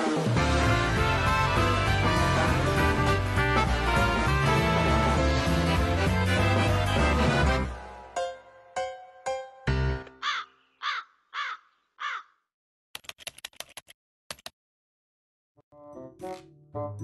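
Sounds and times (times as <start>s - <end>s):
crow cawing: 10.2s - 12.4s.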